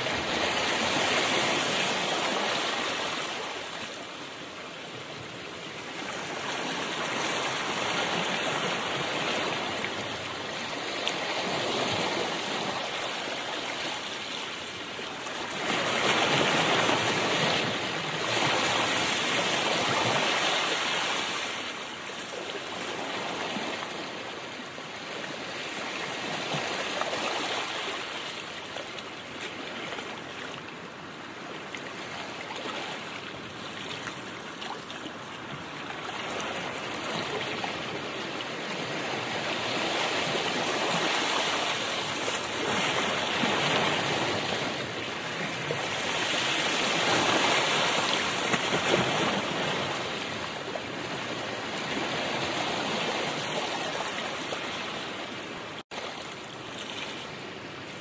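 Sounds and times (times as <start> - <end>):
rushing water-like noise: 0.0 - 58.0.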